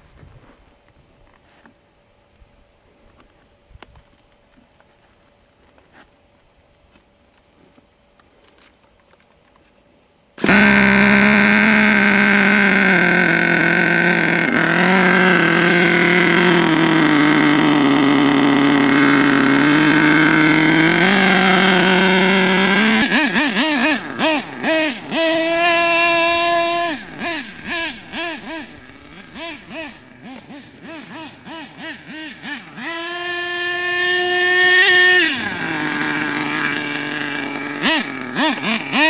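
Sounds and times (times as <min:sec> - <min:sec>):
small two-stroke engine revving: 0:10.4 - 0:39.0.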